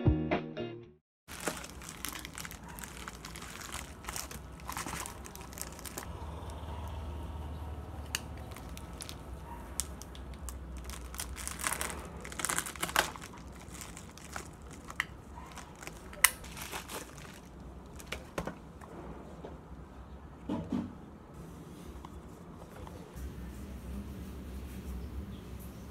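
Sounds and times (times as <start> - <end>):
plastic mailer crinkling: 1.3 - 6.1, 8.0 - 18.6.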